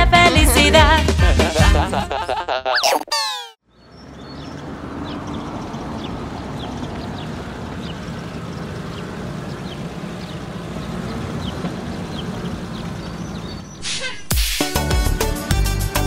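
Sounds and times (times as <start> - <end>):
cartoon truck engine humming: 0.0 - 16.0.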